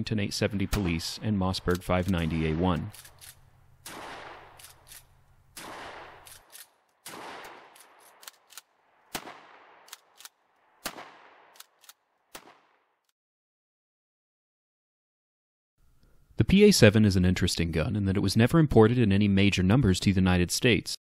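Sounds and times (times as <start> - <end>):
shotgun shots echoing: 0.5 - 12.9
shotgun pump slide clacks: 2.9 - 3.4, 4.5 - 5.1, 6.2 - 6.8, 7.7 - 8.7, 9.9 - 10.4, 11.6 - 12.0.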